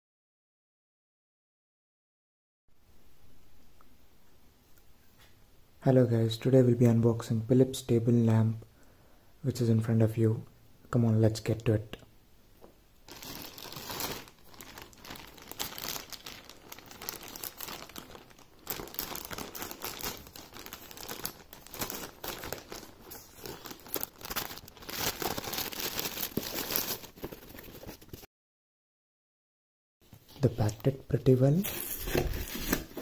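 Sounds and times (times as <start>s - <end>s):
plastic mailer bag crinkling: 13.1s - 28.3s, 31.6s - 33.0s.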